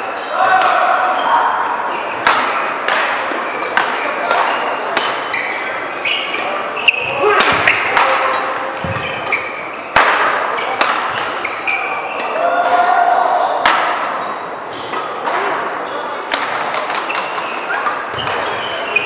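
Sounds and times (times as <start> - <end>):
racket hitting shuttlecock: 2.0 - 5.6, 6.2 - 12.8, 13.6 - 14.2, 16.3 - 18.6
shoe squeaks on court floor: 3.5 - 7.9, 8.8 - 12.2, 16.9 - 19.0.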